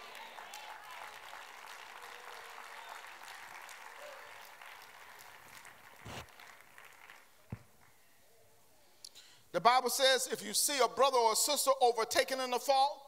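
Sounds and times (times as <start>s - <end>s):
congregation applauding: 0.0s - 8.0s.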